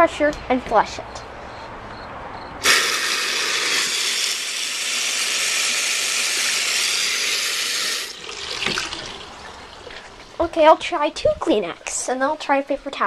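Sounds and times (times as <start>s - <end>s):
toilet flushing: 2.6s - 10.4s.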